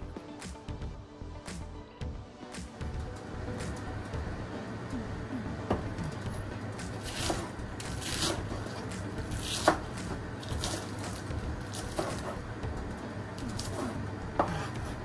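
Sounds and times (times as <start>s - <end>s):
knife cutting lettuce: 6.8s - 12.5s, 13.4s - 14.9s.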